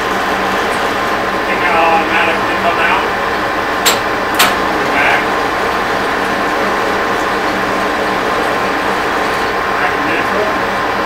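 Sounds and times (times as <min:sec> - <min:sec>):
lathe gear hum: 0:00.0 - 0:11.0
lever clicks: 0:03.8 - 0:04.6.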